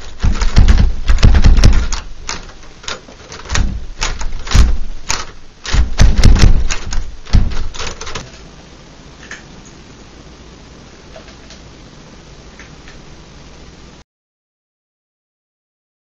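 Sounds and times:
dull thumps: 0.0 - 8.3
sharp clicks and knocks: 0.0 - 8.4.

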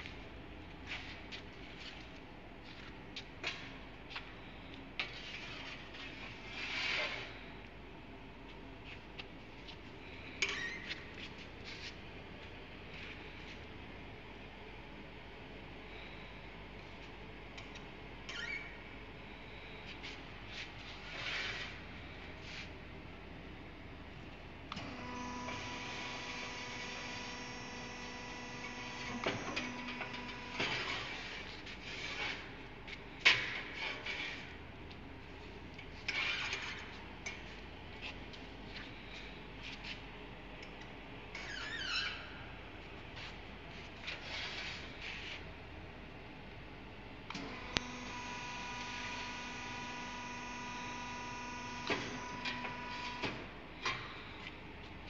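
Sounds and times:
machine hum with whine: 0.0 - 55.0.

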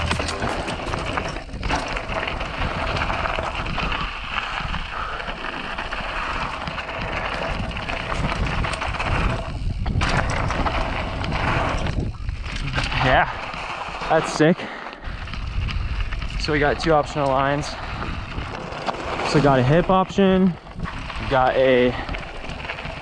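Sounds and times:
bike tyres over dirt and stones: 0.0 - 23.0
wind on microphone: 6.1 - 13.6, 15.0 - 18.8.

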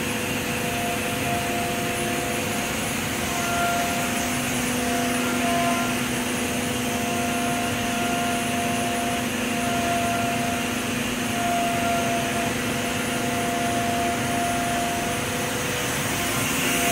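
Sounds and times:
turbine spindle whine: 0.0 - 16.9.

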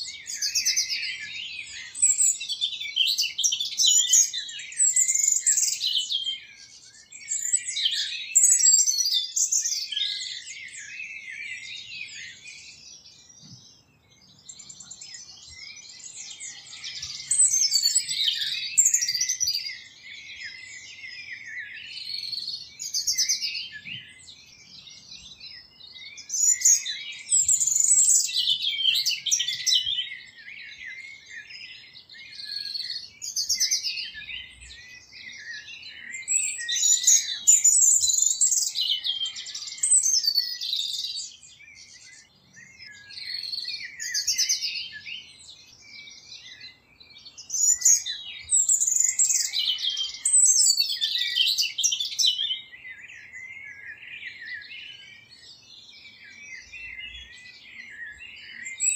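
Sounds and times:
nightingale singing: 0.0 - 58.9.

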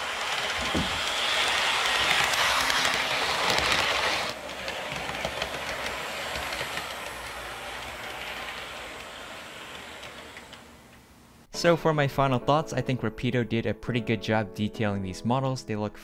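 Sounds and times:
model train motor hum: 0.0 - 11.1
wheels clicking over rail joints: 0.0 - 11.1.

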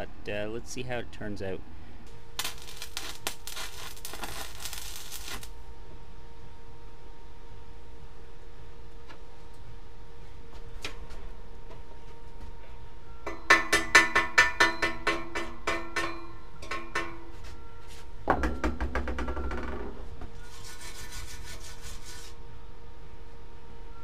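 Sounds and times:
hammer striking steel: 13.2 - 17.4.

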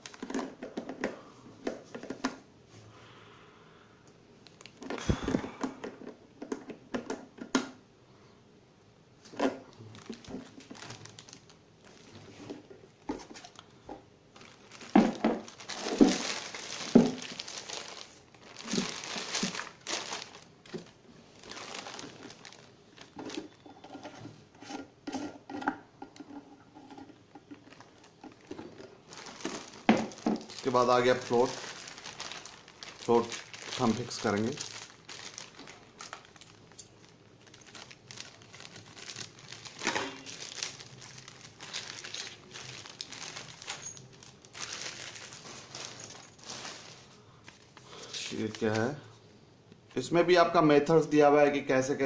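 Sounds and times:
plastic bags crinkling: 0.0 - 0.7, 4.4 - 5.6, 9.3 - 24.1, 26.2 - 49.1.

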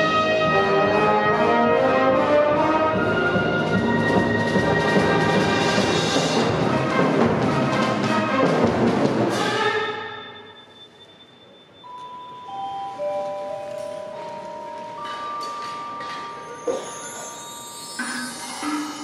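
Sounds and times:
marching band playing: 0.0 - 10.2
ringing mallet percussion notes: 10.2 - 19.0
cymbal crash: 16.4 - 19.0.

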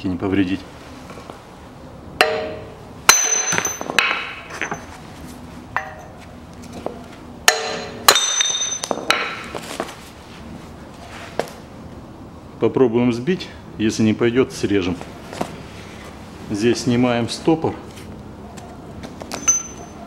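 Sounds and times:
hammer striking metal: 2.2 - 4.9, 5.8 - 6.2, 7.5 - 9.5.

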